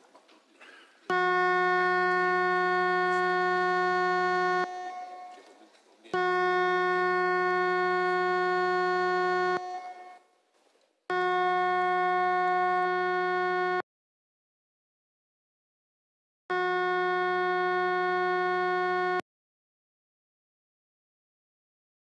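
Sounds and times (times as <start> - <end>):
electric buzzer blasts: 1.1 - 5.4, 6.2 - 10.2, 11.1 - 13.8, 16.5 - 19.2.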